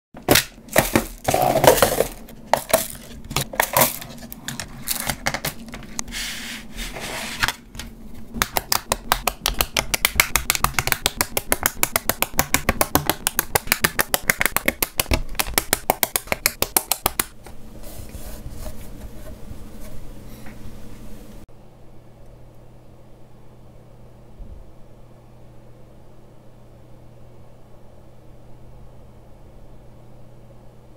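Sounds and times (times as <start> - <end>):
plastic bricks clattering: 0.7 - 5.7.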